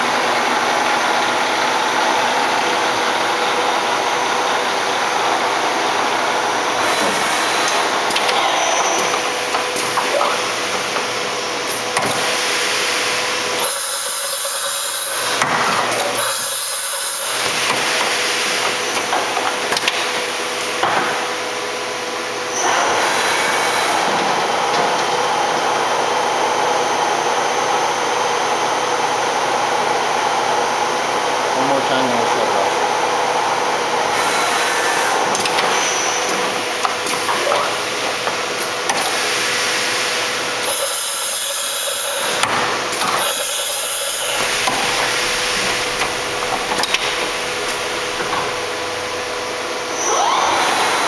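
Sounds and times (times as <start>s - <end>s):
machine mechanical whir: 33.9s - 51.0s.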